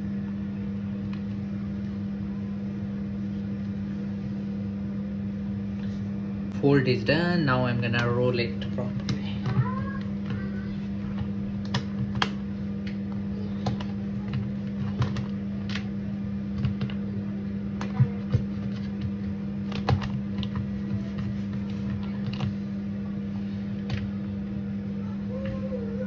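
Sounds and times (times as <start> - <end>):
steady low hum: 0.0 - 26.0
rolling mat clicking on counter: 17.8 - 22.6.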